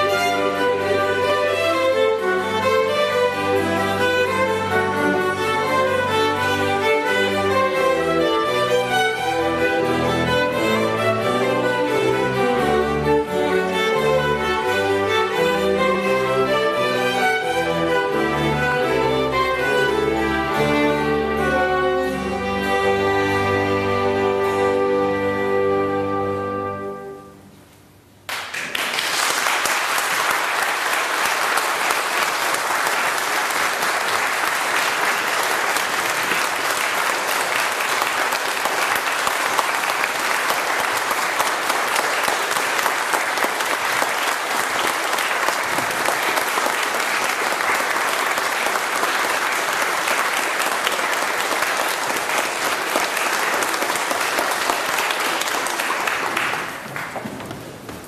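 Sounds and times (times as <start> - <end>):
audience applauding: 28.3 - 58.0.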